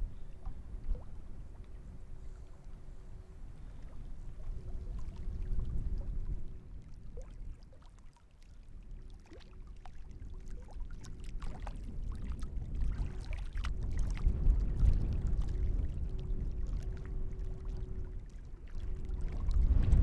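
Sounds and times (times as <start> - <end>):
gusty wind on microphone: 0.0 - 7.3, 11.4 - 20.0
water lapping at shore: 0.0 - 20.0.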